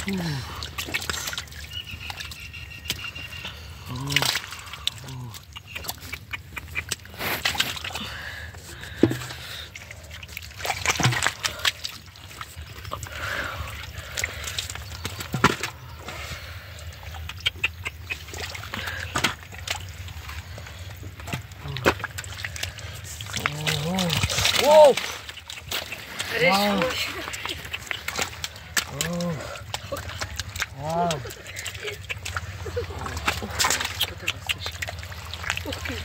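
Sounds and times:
sloshing and squelching in mud: 0.0 - 36.0
wet slaps: 23.4 - 32.5.

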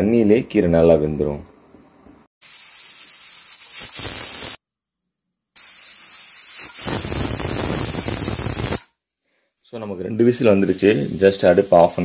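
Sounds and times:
pressure cooker whistling steam: 5.6 - 8.9.

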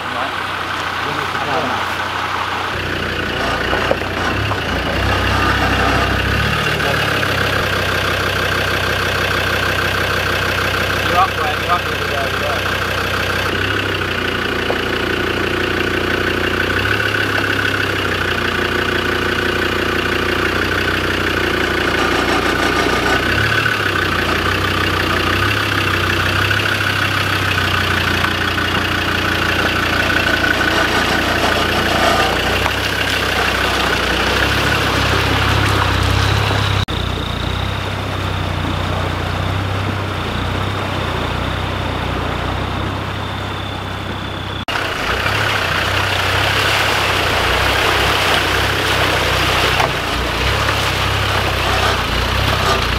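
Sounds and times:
flowing water rushing: 0.0 - 15.8, 44.7 - 52.9
engine running at low revs: 0.0 - 52.9.

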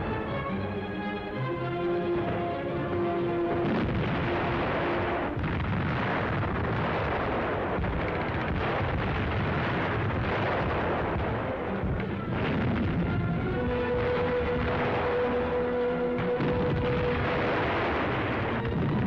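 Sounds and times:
orchestral music: 0.0 - 5.7, 10.2 - 19.0
shell explosions: 2.0 - 19.0
gunfire: 3.4 - 19.0.

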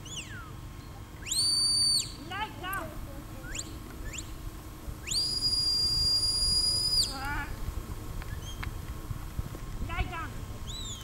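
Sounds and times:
shepherd's whistle commands: 1.2 - 2.2.

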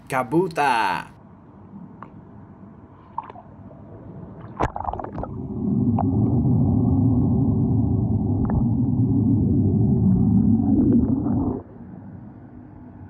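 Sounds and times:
muffled underwater rumble: 1.2 - 13.0
water splashing and gurgling: 3.1 - 11.7.

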